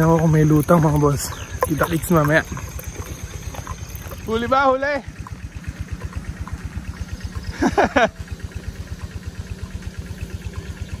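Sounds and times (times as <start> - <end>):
small engine idling: 0.0 - 11.0.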